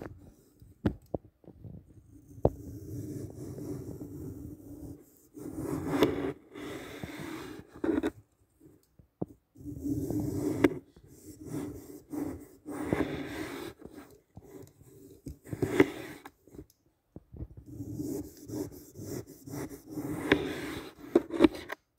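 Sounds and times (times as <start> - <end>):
knife cutting through floral foam: 2.6 - 8.1, 9.6 - 16.3, 17.7 - 21.8.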